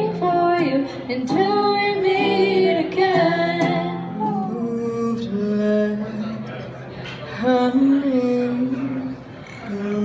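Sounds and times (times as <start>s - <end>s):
young women singing: 0.0s - 5.1s.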